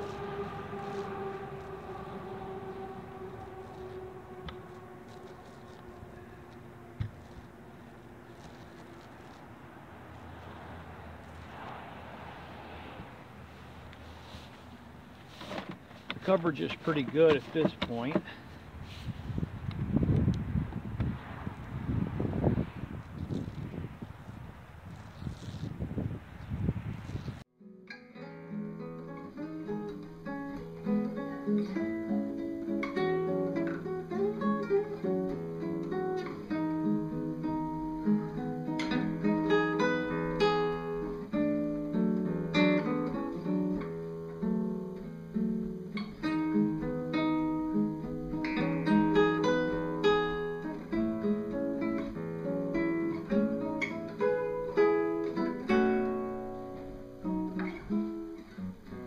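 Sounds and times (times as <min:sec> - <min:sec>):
classical guitar playing: 0:00.0 - 0:10.2, 0:27.5 - 0:59.0.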